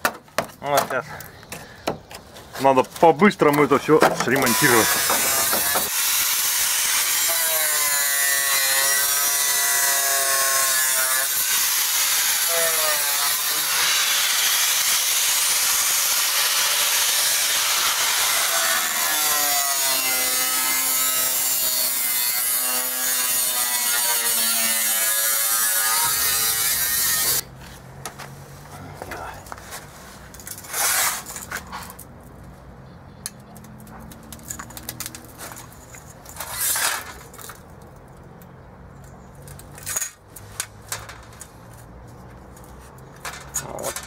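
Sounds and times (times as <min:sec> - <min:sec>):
angle grinder on sheet metal: 0:04.2 - 0:27.4.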